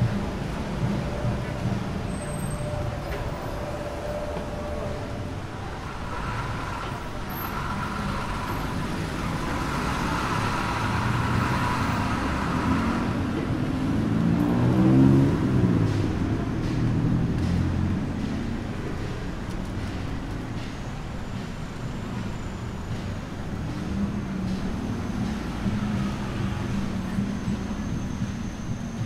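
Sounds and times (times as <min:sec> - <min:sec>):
city street traffic: 0:00.0 - 0:29.0
vehicle engine passing close: 0:05.7 - 0:16.6.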